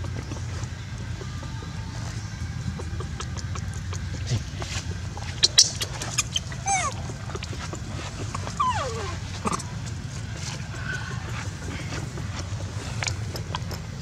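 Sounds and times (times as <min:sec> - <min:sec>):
baby monkey squealing: 0:05.3 - 0:07.5, 0:08.4 - 0:09.7.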